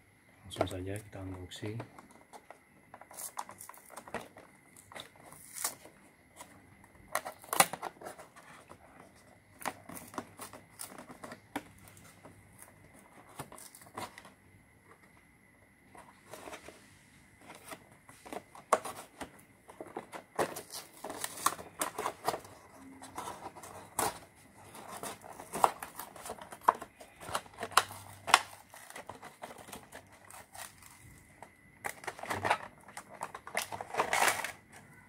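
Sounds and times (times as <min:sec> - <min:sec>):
stiff plastic packaging crinkling: 0:17.5 - 0:34.8.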